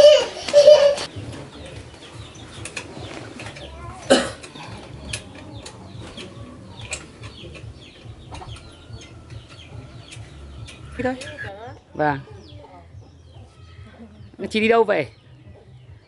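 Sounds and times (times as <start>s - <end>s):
chickens clucking: 0.0s - 11.8s.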